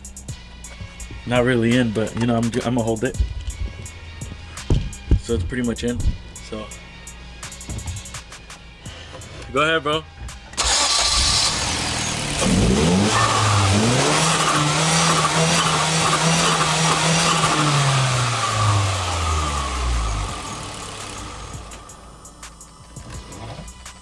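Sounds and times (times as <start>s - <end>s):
turbocharged car engine revving: 10.5s - 24.0s.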